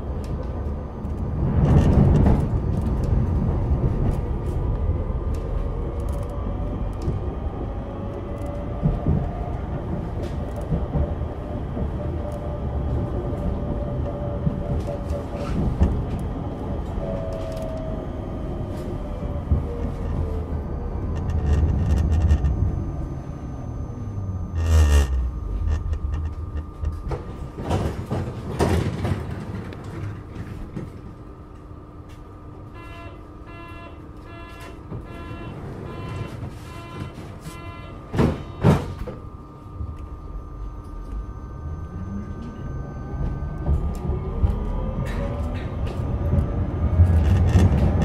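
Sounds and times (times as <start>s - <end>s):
tram motor whine: 0.0s - 48.0s
tram doors thumping shut: 38.0s - 39.2s.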